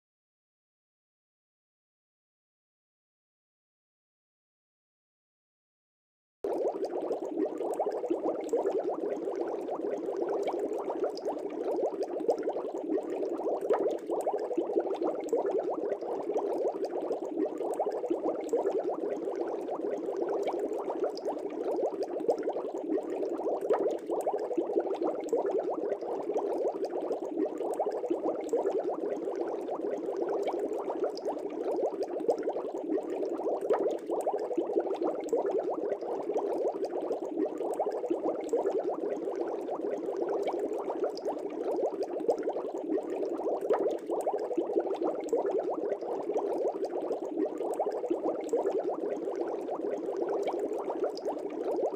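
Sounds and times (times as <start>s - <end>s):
air bubbles in aquarium water: 6.4s - 51.9s.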